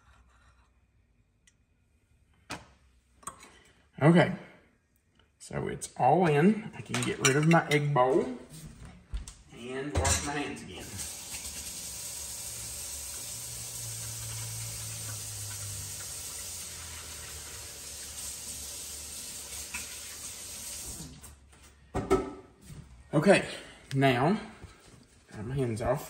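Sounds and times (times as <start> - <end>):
faucet running: 10.7 - 21.2
hands washing under water: 13.0 - 18.2.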